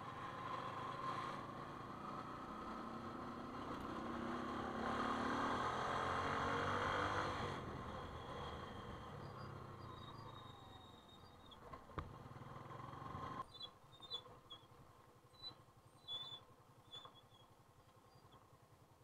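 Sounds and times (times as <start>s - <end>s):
motorcycle engine running: 11.4s - 13.5s.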